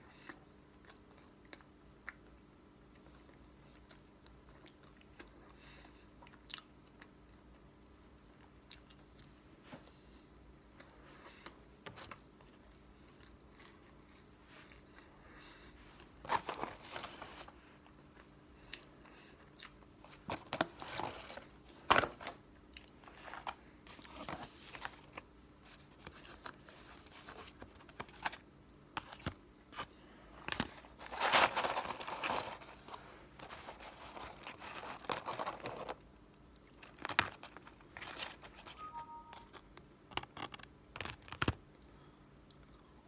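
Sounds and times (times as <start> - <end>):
chewing fries: 0.2 - 7.7
cardboard packaging crinkling: 30.5 - 36.0.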